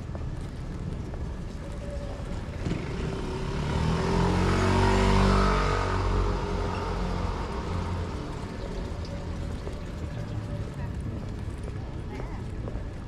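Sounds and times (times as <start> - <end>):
steady traffic noise: 0.0 - 13.0
vehicle passing by: 2.4 - 11.2.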